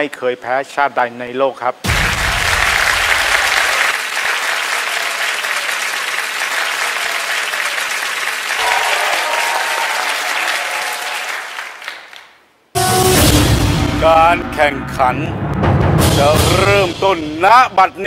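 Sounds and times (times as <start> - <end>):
crowd applauding: 1.9 - 12.5.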